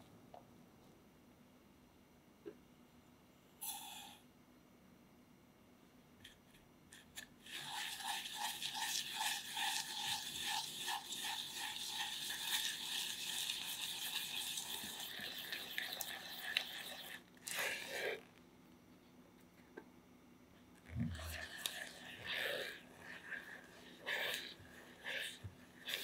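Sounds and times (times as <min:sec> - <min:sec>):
utensil scraping a saucepan: 0:07.4 - 0:18.3, 0:20.9 - 0:26.0.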